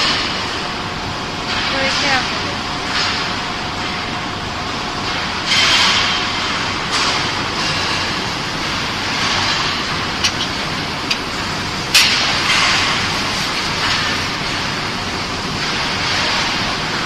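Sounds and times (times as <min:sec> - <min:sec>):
factory machinery: 0:00.0 - 0:17.0.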